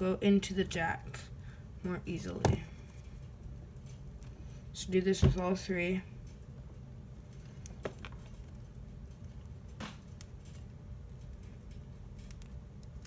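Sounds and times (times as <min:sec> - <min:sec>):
low steady room hum: 0:00.0 - 0:13.0
soft clicks and rustles: 0:06.2 - 0:13.0.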